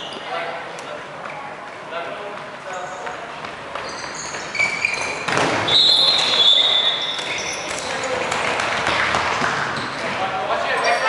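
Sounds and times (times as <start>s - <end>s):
sneakers squeaking on wooden floor: 2.6s - 10.2s
balls thudding: 3.1s - 6.5s.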